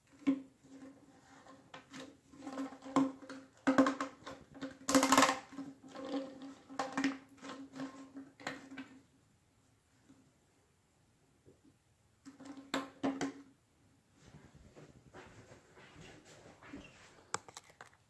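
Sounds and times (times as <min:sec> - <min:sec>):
plastic hose clicks and knocks: 0:01.8 - 0:09.0.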